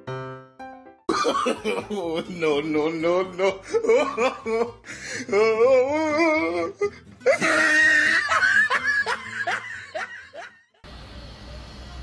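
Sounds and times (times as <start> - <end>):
person laughing hard: 1.1 - 2.6, 3.3 - 10.8.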